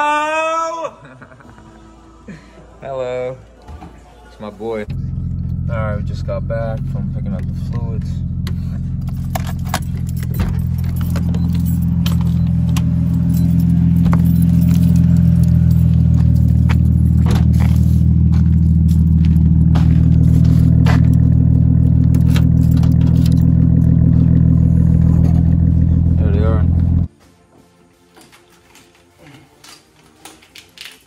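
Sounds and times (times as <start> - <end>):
car engine idling: 4.8 - 27.1
keys jangling: 8.8 - 19.6, 22.1 - 24.0.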